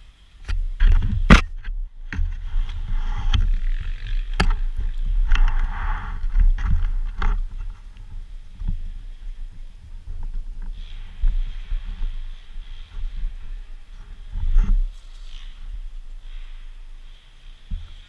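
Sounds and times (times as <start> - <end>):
wind buffeting: 0.6 - 17.1.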